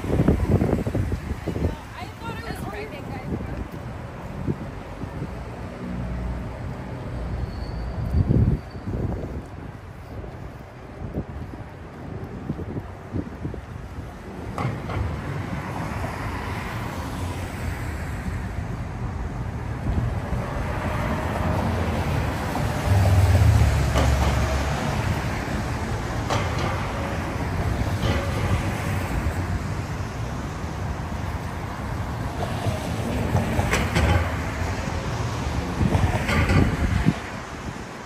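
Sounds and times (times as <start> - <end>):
road noise of passing vehicles: 0.0 - 38.0
heavy vehicle engine rumble: 18.4 - 32.4.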